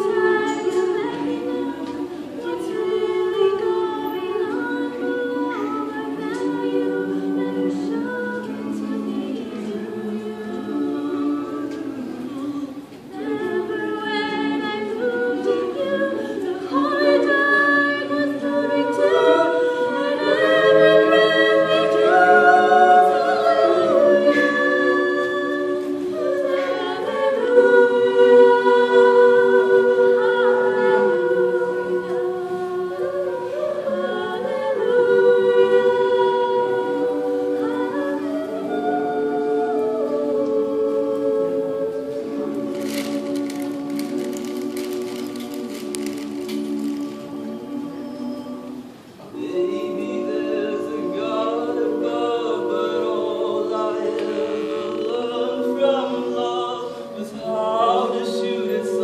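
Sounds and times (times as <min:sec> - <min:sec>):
choir singing close harmony: 0:00.0 - 0:59.0.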